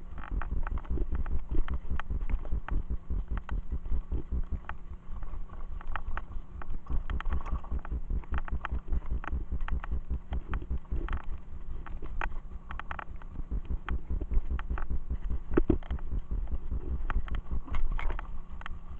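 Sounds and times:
bike tyres rumbling on dirt trail: 0:06.9 - 0:11.2.

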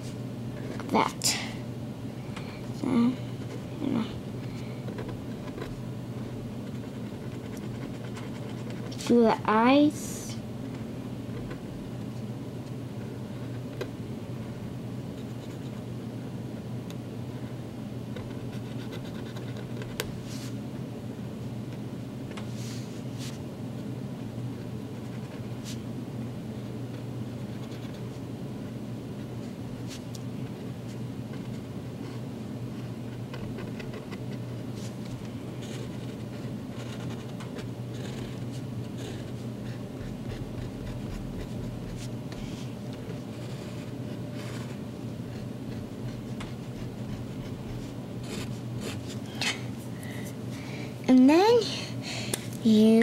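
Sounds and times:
steady low hum: 0:00.0 - 0:53.0
marker scratching on paper: 0:06.7 - 0:09.2, 0:18.2 - 0:20.5, 0:35.6 - 0:49.2
marker drawing on paper: 0:46.1 - 0:49.1.

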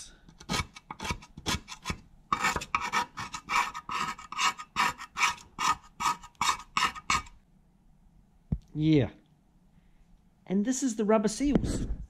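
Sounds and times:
hand scraping metal cover: 0:00.3 - 0:07.4.

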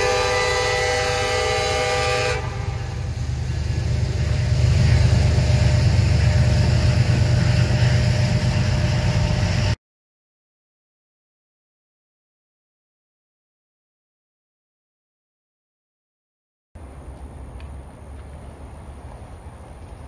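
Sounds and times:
locomotive air horn: 0:00.0 - 0:03.2
diesel locomotive engine rumble: 0:00.0 - 0:09.8, 0:16.8 - 0:20.0.

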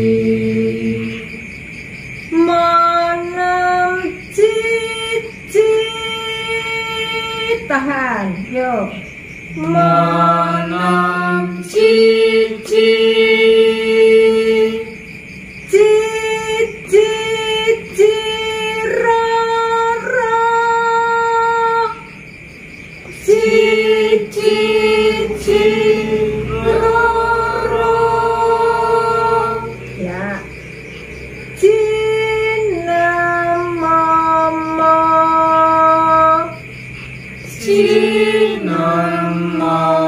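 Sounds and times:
lower voice singing: 0:00.0 - 0:01.6, 0:02.3 - 0:07.7, 0:09.5 - 0:15.1, 0:15.7 - 0:22.2, 0:23.1 - 0:36.7, 0:37.4 - 0:40.0
woman singing slow held notes: 0:23.2 - 0:30.5.

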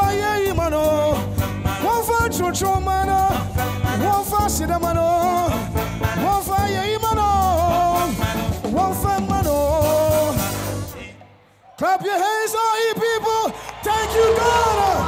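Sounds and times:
trumpet: 0:00.0 - 0:11.4
man singing lead vocal: 0:00.0 - 0:12.9
live band playing gospel music: 0:00.0 - 0:15.0.

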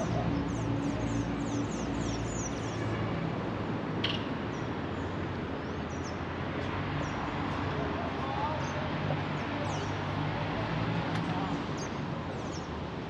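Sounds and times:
small birds chirping: 0:00.0 - 0:02.8, 0:08.2 - 0:10.1
city street traffic: 0:00.0 - 0:13.0.

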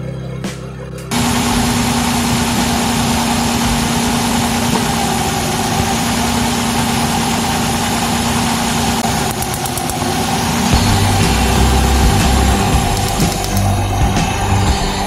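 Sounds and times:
car engine idling: 0:01.1 - 0:15.0.

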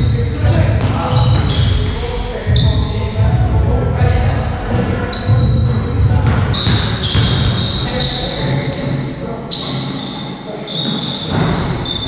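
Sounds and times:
players' voices: 0:00.0 - 0:12.0
basketball bouncing on hardwood: 0:06.2 - 0:07.9.

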